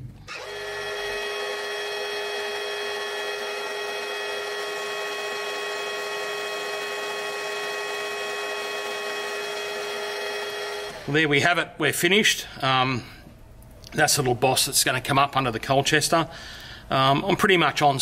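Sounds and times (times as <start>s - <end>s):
metal lathe whining: 0.3s - 11.4s.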